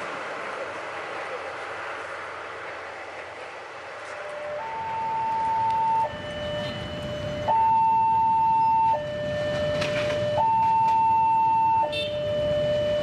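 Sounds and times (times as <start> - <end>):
electronic two-tone warning alarm: 4.2 - 13.0.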